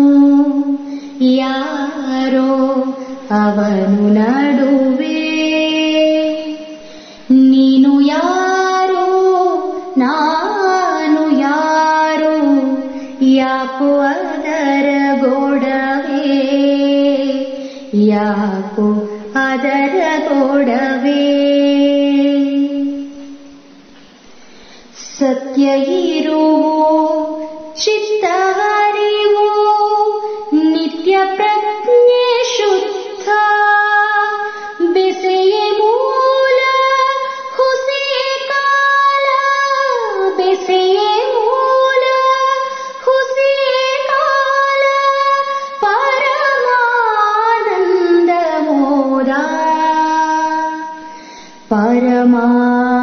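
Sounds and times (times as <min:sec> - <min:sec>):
woman singing long held notes: 0:25.0 - 0:53.0.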